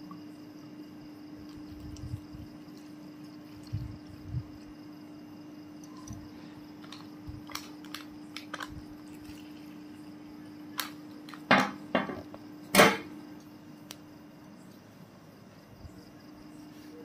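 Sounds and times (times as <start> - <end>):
steady low hum: 0.0 - 17.0
whisky pouring into cup: 5.6 - 7.9, 8.9 - 10.0.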